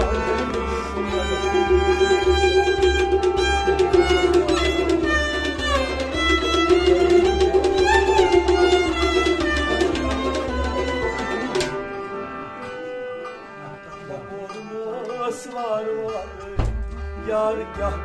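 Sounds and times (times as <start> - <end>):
hand drum beat: 0.0 - 11.8
bowed string instrument sliding: 0.0 - 14.7
harmonium melody: 0.0 - 18.0.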